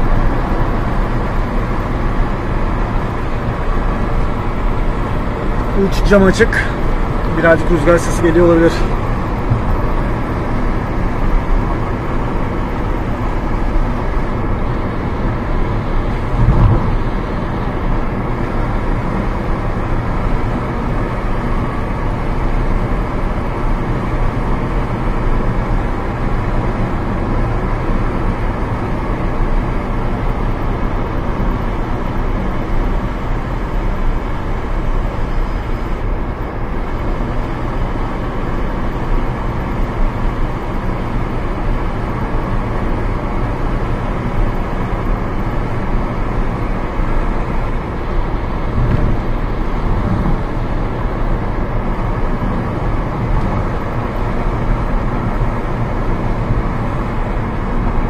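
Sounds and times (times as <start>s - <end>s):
car engine and road noise: 0.0s - 58.0s
wind through open window: 8.8s - 58.0s
low thump: 9.4s - 9.8s, 16.4s - 17.0s.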